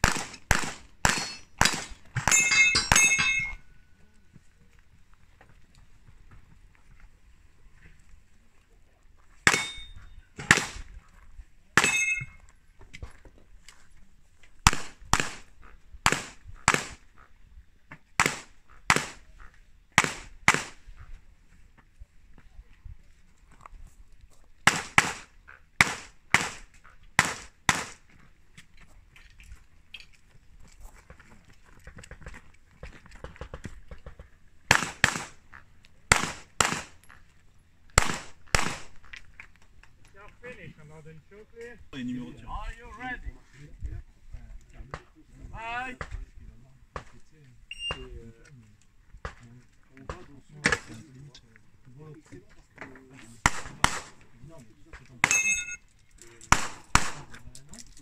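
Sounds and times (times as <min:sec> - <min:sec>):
pistol shots: 0:00.0 - 0:03.5, 0:09.4 - 0:10.9, 0:14.7 - 0:17.0, 0:18.2 - 0:19.2, 0:20.0 - 0:20.8, 0:24.6 - 0:28.0, 0:34.7 - 0:35.4, 0:36.1 - 0:37.0, 0:38.0 - 0:39.1, 0:53.4 - 0:54.3, 0:56.4 - 0:57.4
metallic ring: 0:02.3 - 0:03.9, 0:09.5 - 0:10.2, 0:11.8 - 0:12.5, 0:55.2 - 0:55.9.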